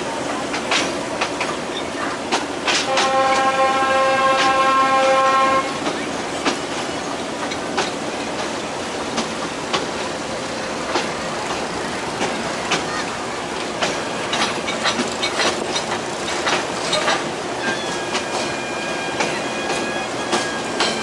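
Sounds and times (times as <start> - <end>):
train rolling rumble: 0.0 - 21.0
wheels clacking over rail joints: 0.0 - 21.0.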